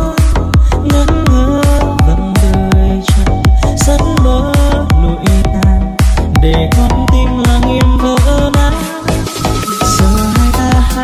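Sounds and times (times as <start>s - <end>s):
fast electronic dance music: 0.0s - 11.0s
heavy kick drum: 0.0s - 11.0s
synth melody: 0.4s - 11.0s.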